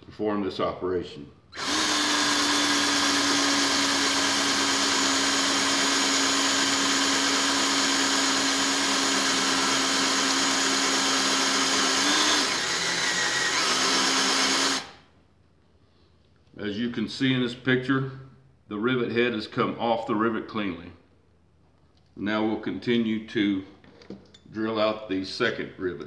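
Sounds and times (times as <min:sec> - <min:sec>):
cordless drill drilling metal: 0:01.5 - 0:15.0.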